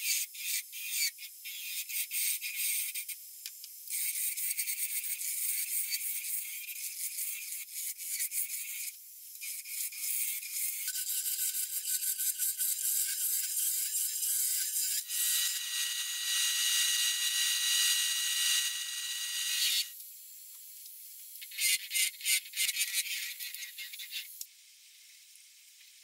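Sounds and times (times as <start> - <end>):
sandpaper hissing on wood: 3.9 - 15.1
chisel cutting spinning wood: 10.5 - 20.0.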